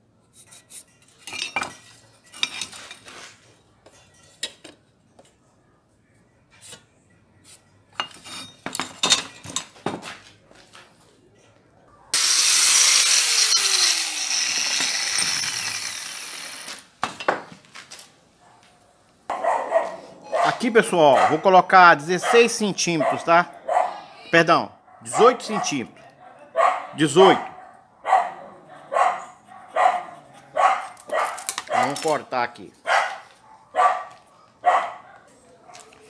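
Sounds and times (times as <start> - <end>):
power tool cutting steel: 12.2 - 16.8.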